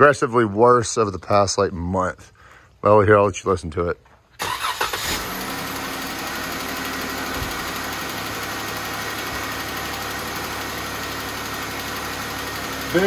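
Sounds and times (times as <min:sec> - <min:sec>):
car engine idling: 0:04.5 - 0:13.0
engine ticking: 0:04.5 - 0:13.0.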